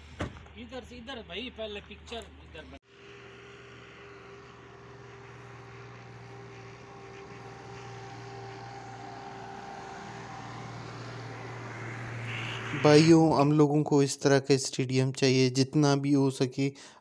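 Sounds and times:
low engine-like drone: 2.9s - 13.6s.

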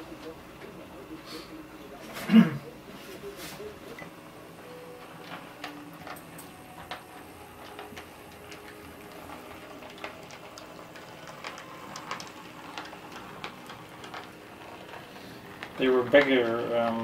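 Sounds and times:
wheels clicking over rail joints: 4.9s - 17.0s
model train motor whirring: 5.1s - 17.0s.

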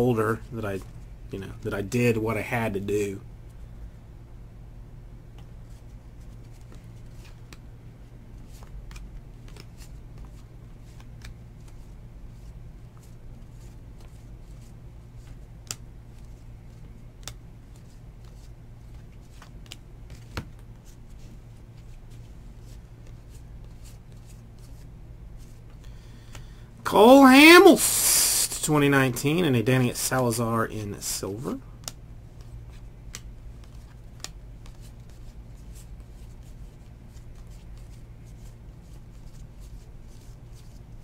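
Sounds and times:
baseball cards flipped by hand: 5.3s - 7.7s, 8.3s - 26.5s, 31.8s - 40.8s.

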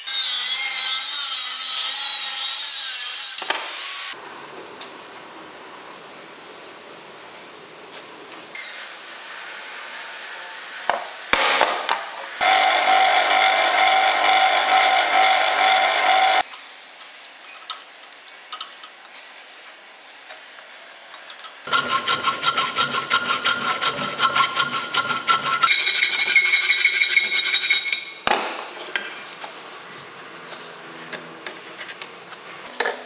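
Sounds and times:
drill press cutting steel: 12.4s - 16.4s, 21.7s - 24.6s.

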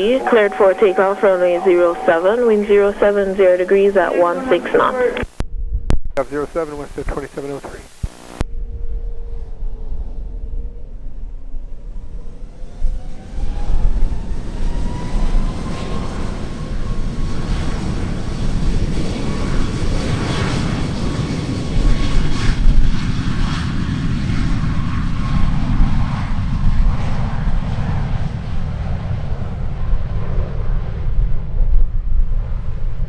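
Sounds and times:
jet engine rumble: 0.0s - 5.4s, 6.2s - 33.0s
jet engines whining: 0.0s - 5.4s, 12.3s - 31.1s.

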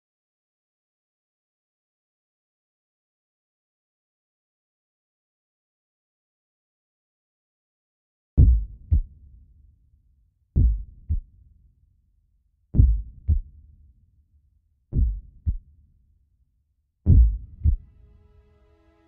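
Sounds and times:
heartbeat thumps: 8.4s - 9.1s, 10.6s - 11.2s, 12.8s - 13.4s, 15.0s - 15.6s, 17.1s - 17.8s.

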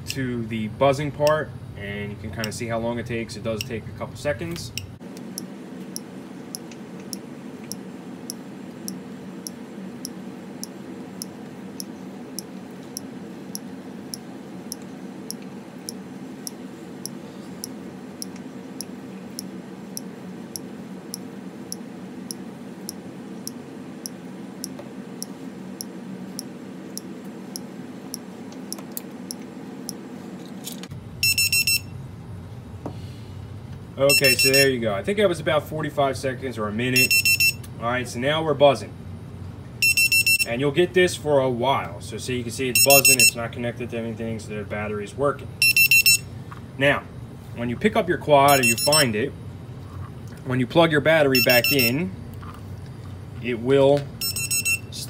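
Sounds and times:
high-pitched beeping alarm: 31.2s - 31.9s, 34.1s - 34.7s, 37.0s - 37.6s, 39.8s - 40.5s, 42.8s - 43.4s, 45.6s - 46.2s, 48.5s - 49.1s, 51.3s - 52.0s, 54.2s - 55.0s
buzzer ticking clicks: 45.6s - 46.2s, 51.4s - 51.9s, 54.2s - 54.8s.

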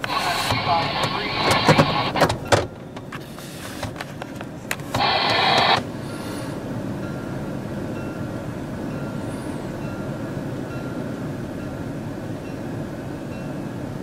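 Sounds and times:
power window motor whirring: 4.9s - 5.9s.

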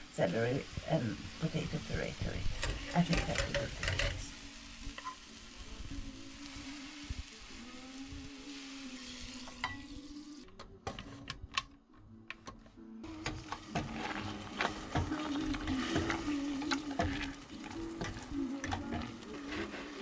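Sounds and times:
meat sizzling in a frying pan: 0.1s - 10.5s, 13.2s - 20.0s
spatula stirring: 13.1s - 20.0s.

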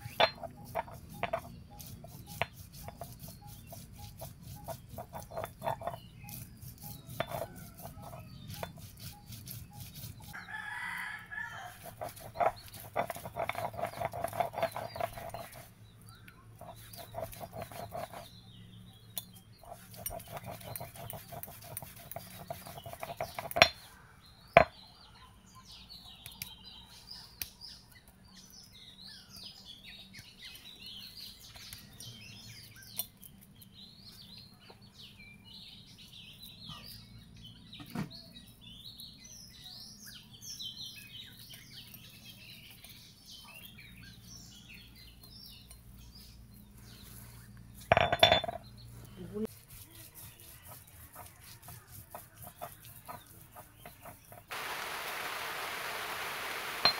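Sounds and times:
stone scraping on grinding slab: 0.0s - 10.4s, 11.7s - 15.7s, 16.6s - 18.4s, 19.6s - 23.8s, 47.9s - 48.6s
small birds chirping: 0.0s - 56.9s
stone knocking against slab: 47.9s - 48.6s.

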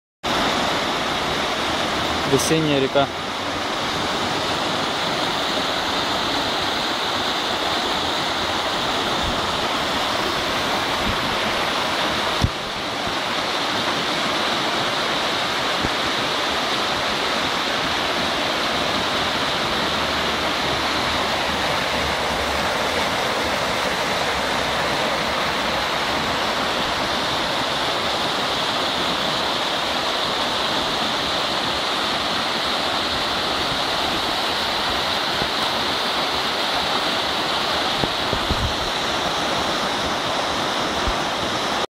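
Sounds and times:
river water rushing over rapids: 0.3s - 41.9s.

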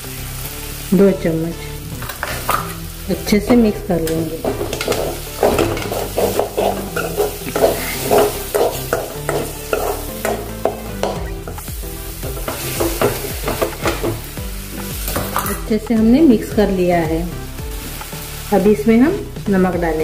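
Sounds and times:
light sizzle: 0.0s - 20.0s
spoon scraping a pan: 2.0s - 2.8s, 3.6s - 11.7s, 12.3s - 15.7s.

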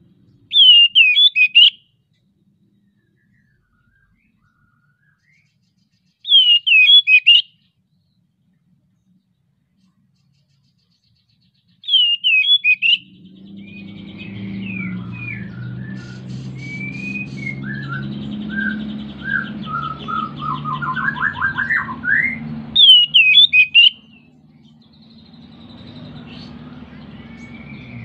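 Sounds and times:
bird singing whistled phrases: 0.5s - 1.8s, 3.0s - 5.6s, 6.3s - 7.6s, 11.8s - 24.3s, 25.4s - 28.0s.

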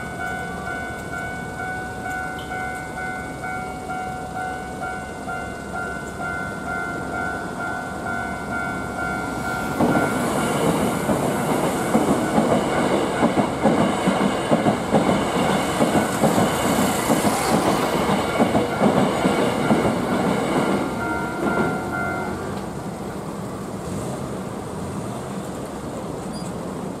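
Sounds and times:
level crossing warning bell: 0.0s - 22.9s
street noise: 0.0s - 27.0s
train wheels clattering: 9.3s - 22.8s.

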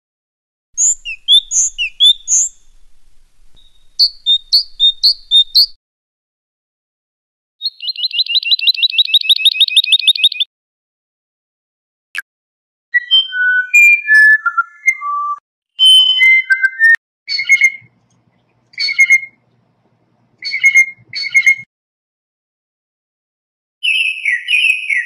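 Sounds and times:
whistled bird notes: 0.8s - 2.9s, 3.6s - 5.8s, 7.6s - 10.5s, 13.0s - 18.0s, 18.6s - 19.4s, 20.4s - 21.7s, 23.8s - 25.0s.

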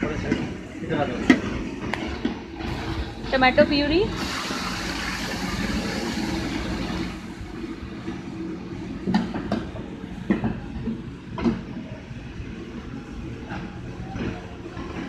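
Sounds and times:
steady low rumble: 0.0s - 15.0s
puree sizzling in hot oil: 4.2s - 7.1s.

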